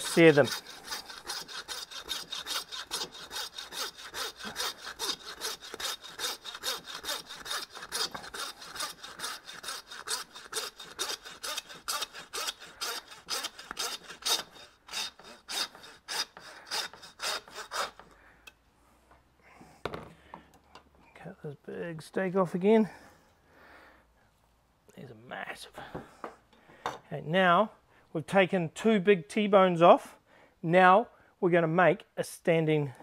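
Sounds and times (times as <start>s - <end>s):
hand saw cutting bone: 0.0s - 18.1s.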